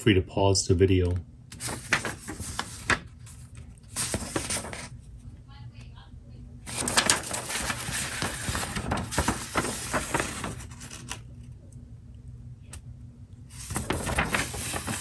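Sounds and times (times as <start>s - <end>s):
paper rustling and crinkling: 1.5s - 5.0s, 6.7s - 11.3s, 13.5s - 15.0s.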